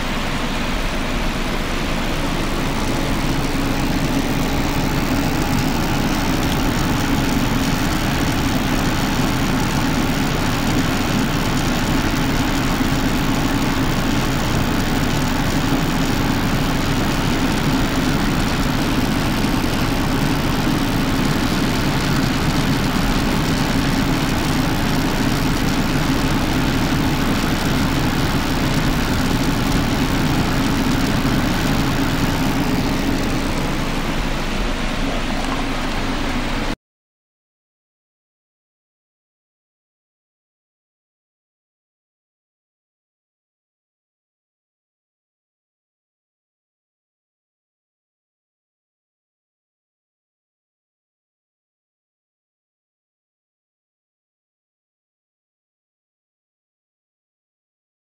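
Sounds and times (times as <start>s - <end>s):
cooling fan hum: 0.0s - 36.8s
power supply hissing: 0.0s - 36.8s.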